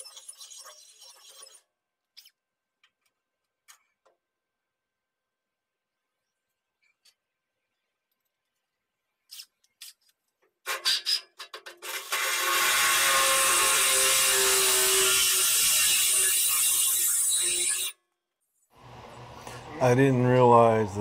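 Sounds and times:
cordless drill drilling into steel: 11.8 - 18.0.

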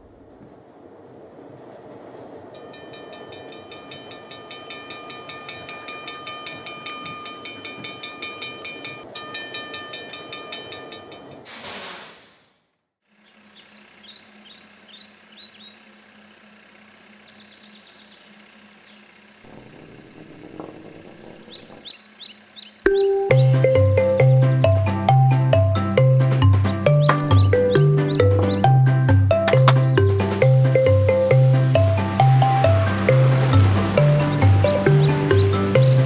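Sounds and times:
train wheels clattering on rails: 0.2 - 11.8
high ringing tone: 2.5 - 11.5
steam hiss: 11.4 - 12.6
birds chirping: 13.1 - 36.0.

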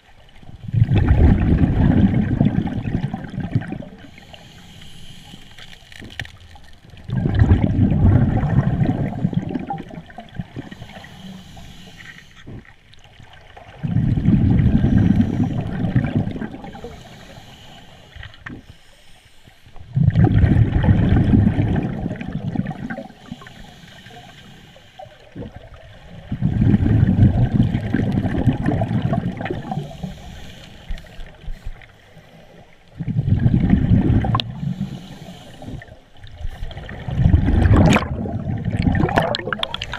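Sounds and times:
diver exhaling bubbles underwater: 0.6 - 4.1, 7.1 - 10.8, 13.7 - 16.9, 19.9 - 23.1, 25.4 - 30.1, 33.0 - 34.9, 36.5 - 39.9
regulator breathing: 29.8 - 32.6.

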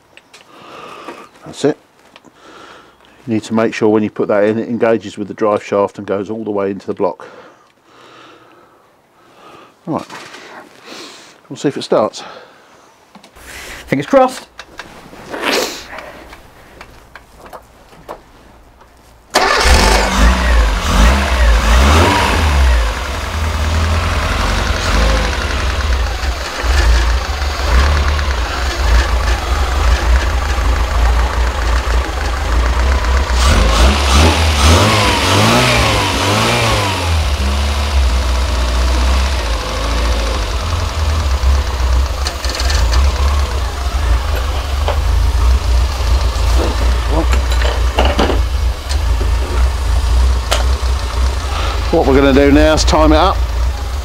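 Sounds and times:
car engine starting and revving: 19.3 - 54.0.

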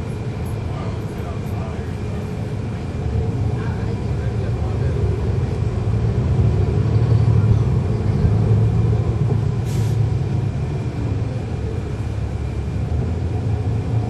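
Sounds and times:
bus diesel engine running: 0.0 - 14.0
air hiss: 9.6 - 10.1.

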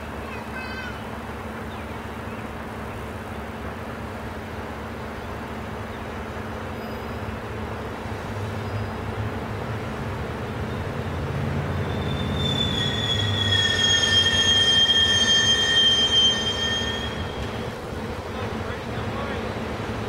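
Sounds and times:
electric train rumbling: 0.0 - 20.0
brake squeal: 6.7 - 7.4, 8.6 - 9.0, 10.7 - 17.7.

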